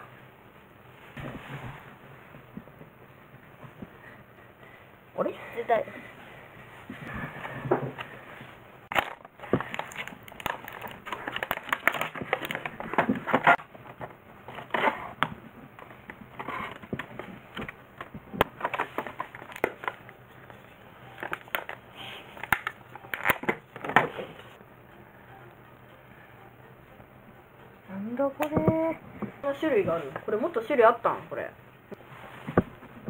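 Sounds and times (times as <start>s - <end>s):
plastic packaging crinkling: 8.9s - 13.6s, 18.5s - 21.8s.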